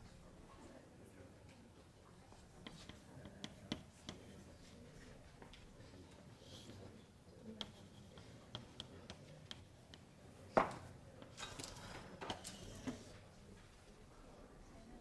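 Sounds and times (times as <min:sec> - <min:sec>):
chalk tapping on blackboard: 0:02.6 - 0:04.4, 0:07.5 - 0:10.7.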